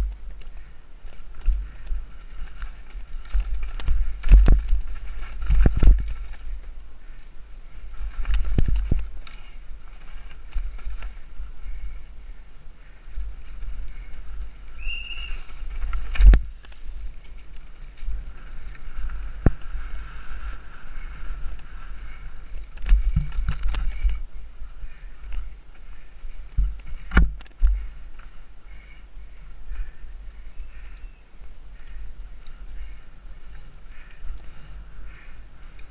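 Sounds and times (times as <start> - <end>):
bike rattling and knocking: 0.0 - 12.1, 12.9 - 29.0
wind rumbling on microphone: 0.0 - 35.9.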